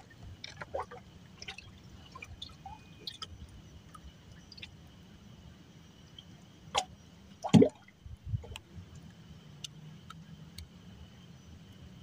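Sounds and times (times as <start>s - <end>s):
water plops and drips: 0.4s - 3.3s, 6.7s - 7.9s
faint ticks: 8.5s - 10.8s.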